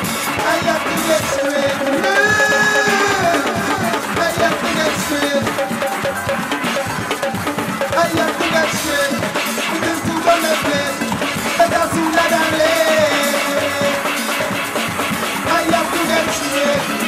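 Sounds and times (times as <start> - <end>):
music with drum beat: 0.0 - 17.0.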